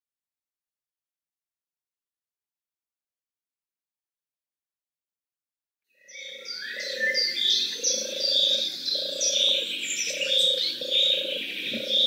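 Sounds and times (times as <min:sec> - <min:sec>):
birds chirping and trilling: 0:06.0 - 0:12.0.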